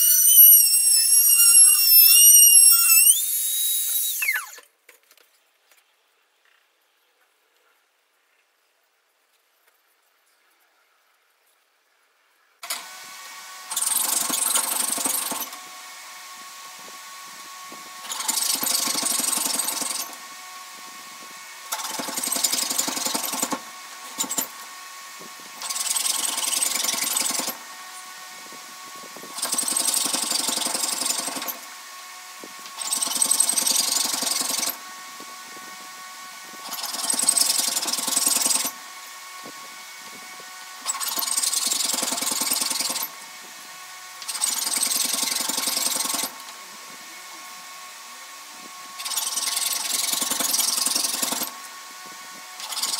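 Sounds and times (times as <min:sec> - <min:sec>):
fret saw rasping strokes: 0:00.0 - 0:04.6.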